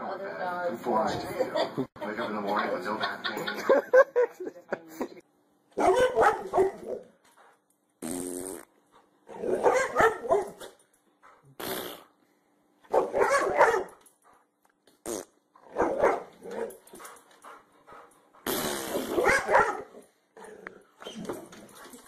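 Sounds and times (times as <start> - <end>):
dog barking growly: 5.8 - 7.1, 9.3 - 10.7, 12.9 - 13.9, 15.6 - 16.8, 18.9 - 20.8.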